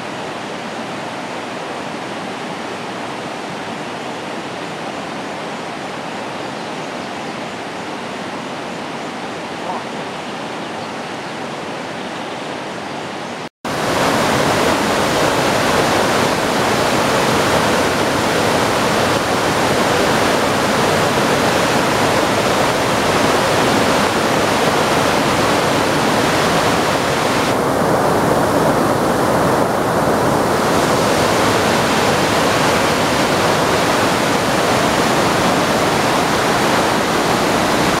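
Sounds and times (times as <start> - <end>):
river flowing: 0.0 - 38.0
waterfall pouring over rocks: 13.7 - 38.0.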